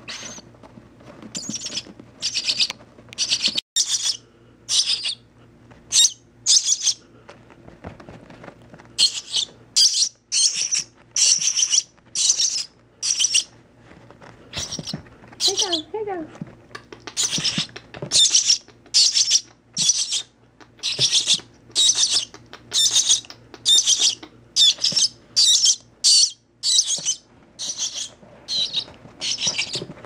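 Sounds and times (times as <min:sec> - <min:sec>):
nestling bird cheeping: 0:01.4 - 0:05.2, 0:09.0 - 0:13.5, 0:17.1 - 0:29.8.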